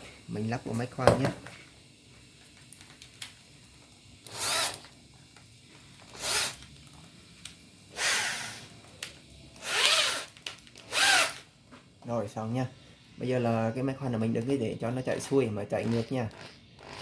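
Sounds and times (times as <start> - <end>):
electric drill spinning: 4.2 - 5.0, 5.9 - 7.0, 7.9 - 8.9, 9.6 - 11.5, 15.2 - 17.0.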